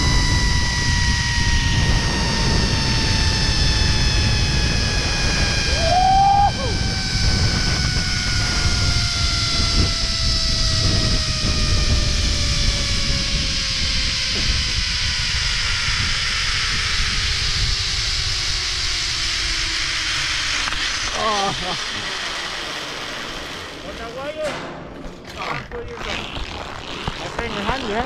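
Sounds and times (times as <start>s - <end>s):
rising-and-falling tone: 0.0s - 16.3s
wind on microphone: 0.0s - 21.1s
zip-line pulleys whining: 0.0s - 28.0s.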